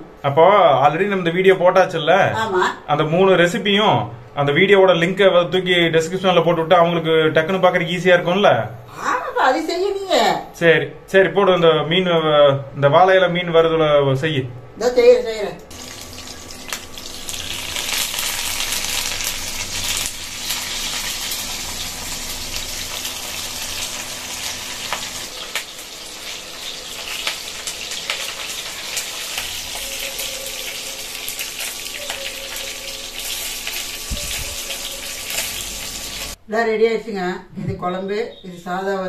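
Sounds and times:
fish sizzling in a pan: 15.7s - 36.4s.

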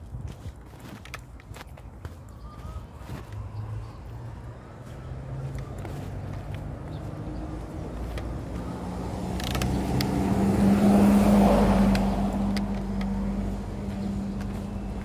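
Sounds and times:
car passing close by: 3.6s - 15.0s.

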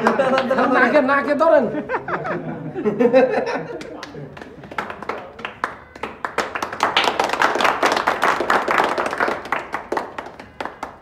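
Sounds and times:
people clapping: 0.0s - 0.9s, 3.5s - 11.0s.

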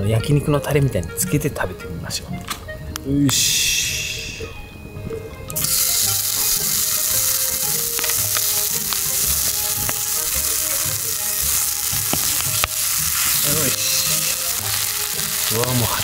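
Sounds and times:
fat popping: 4.4s - 16.0s
pork sizzling over a fire: 5.5s - 16.0s.

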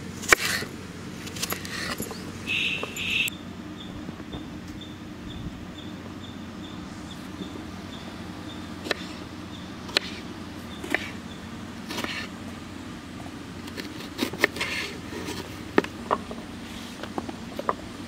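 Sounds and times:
steady low hum: 0.0s - 18.0s
knife chopping on wooden board: 9.9s - 10.2s, 10.8s - 11.2s, 11.9s - 12.3s.

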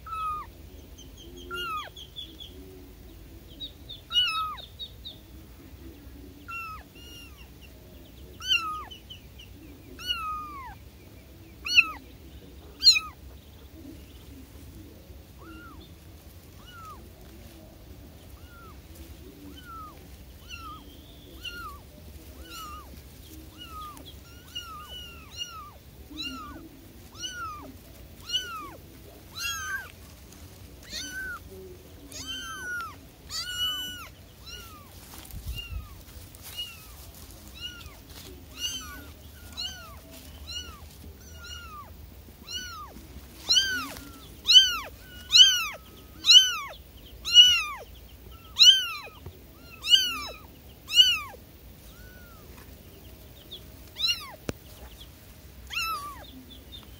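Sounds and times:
kittens mewing: 0.0s - 0.6s, 1.4s - 2.0s, 4.1s - 4.6s, 6.4s - 7.6s, 8.4s - 8.9s, 9.9s - 10.8s, 11.6s - 12.0s, 12.7s - 13.3s, 15.3s - 15.9s, 16.5s - 17.1s, 18.3s - 30.0s, 30.8s - 52.7s, 53.8s - 54.9s, 55.6s - 56.4s.

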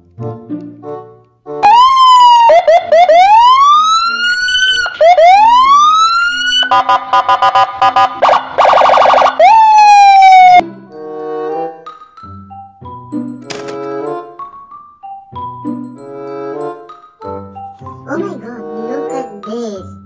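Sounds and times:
electronic police siren: 1.6s - 10.6s.

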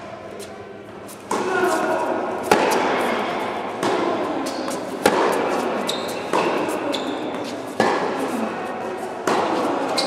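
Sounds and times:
tennis ball impacts echoing: 1.2s - 10.0s.

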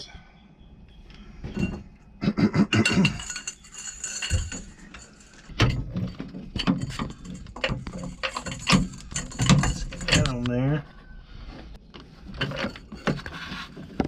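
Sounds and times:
metal tools clinking: 1.5s - 2.0s, 2.7s - 10.5s, 12.3s - 13.5s
metal knocks: 2.8s - 10.5s.

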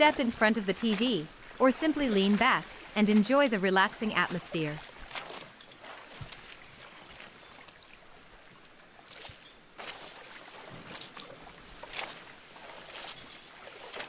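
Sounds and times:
seawater splashing against boat hull: 0.0s - 14.0s.

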